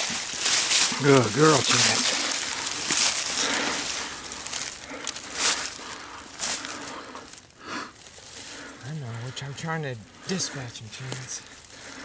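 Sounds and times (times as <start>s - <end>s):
dry leaves crunching and rustling: 0.0s - 8.7s.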